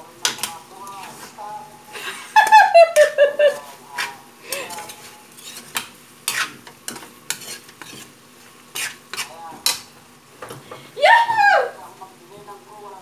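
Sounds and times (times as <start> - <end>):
food sizzling: 0.0 - 13.0
metal spatula scraping a wok: 3.6 - 9.9.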